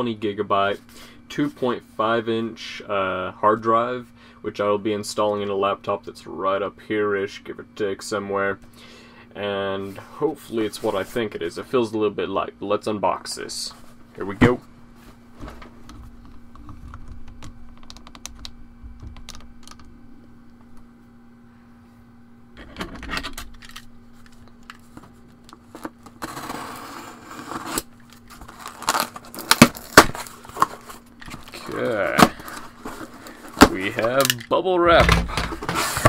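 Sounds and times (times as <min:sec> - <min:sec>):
faint steady hum: 0:00.0 - 0:36.0
packing tape tearing: 0:25.4 - 0:34.4
cardboard clicks and crackles: 0:27.4 - 0:34.4.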